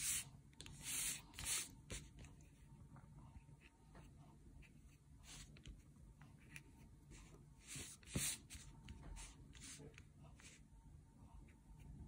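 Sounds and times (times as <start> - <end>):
paintbrush swishing on paper: 0.0 - 2.6, 3.4 - 5.8, 6.4 - 10.6.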